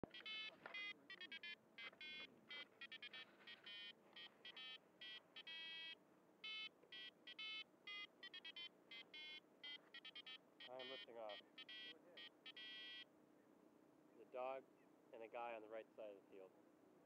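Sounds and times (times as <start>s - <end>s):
faint electronic beeping: 0.0s - 13.1s.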